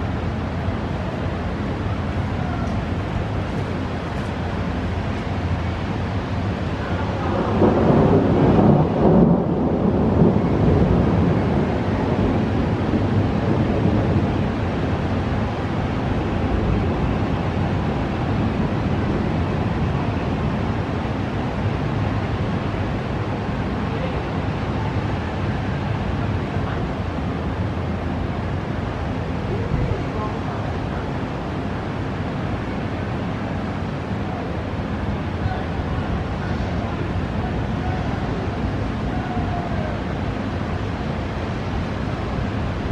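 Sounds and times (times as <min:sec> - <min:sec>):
thunder rumbling: 0:06.6 - 0:23.8.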